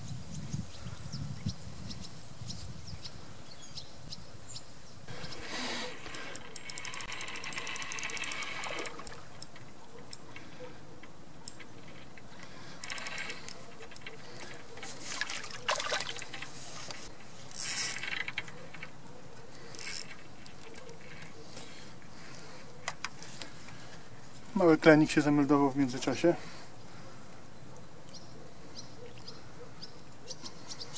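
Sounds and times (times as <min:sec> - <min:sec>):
fishing reel clicking: 0:06.0 - 0:09.5, 0:12.8 - 0:14.2, 0:17.5 - 0:18.6, 0:19.7 - 0:20.6
water splashing: 0:14.8 - 0:17.1.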